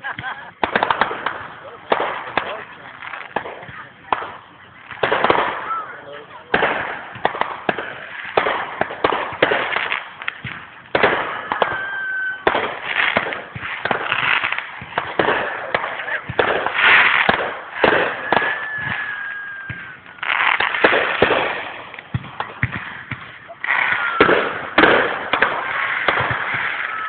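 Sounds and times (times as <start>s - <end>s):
fireworks bangs and crackling pops: 0.0s - 27.0s
falling whistling tone: 11.3s - 12.4s, 18.0s - 20.2s.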